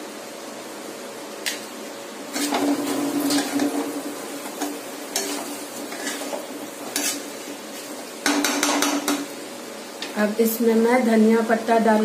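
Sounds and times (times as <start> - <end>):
spatula scraping a steel pan: 2.3 - 2.7, 5.1 - 8.9.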